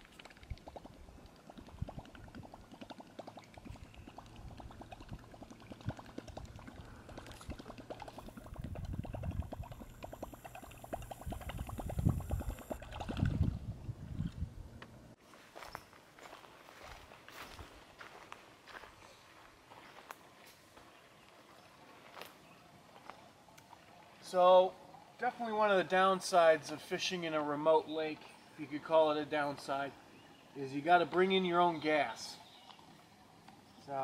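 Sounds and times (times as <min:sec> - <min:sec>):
lure gurgling and splashing on water: 0:00.0 - 0:14.4.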